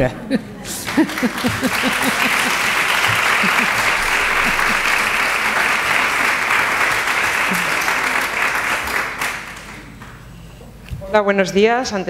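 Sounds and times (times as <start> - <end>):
audience applauding: 0.7 - 10.2.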